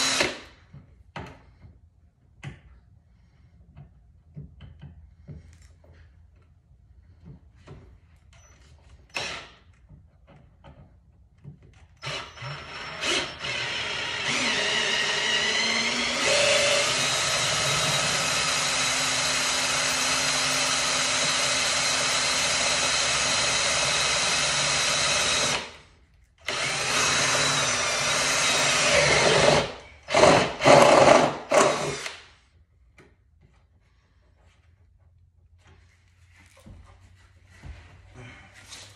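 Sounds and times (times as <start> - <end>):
cordless drill drilling into sheet metal: 0.0 - 0.5, 12.0 - 32.3.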